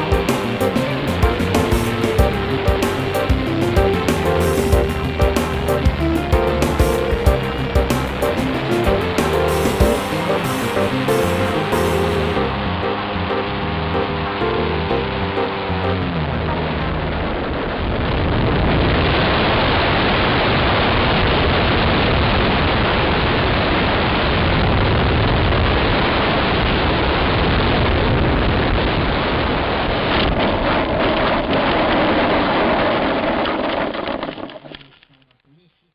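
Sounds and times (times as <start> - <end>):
model plane engine running: 0.0 - 17.6.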